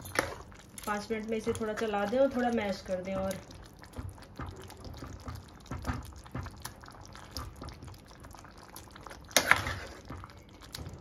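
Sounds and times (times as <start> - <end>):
ladle stirring thick curry: 0.0 - 11.0.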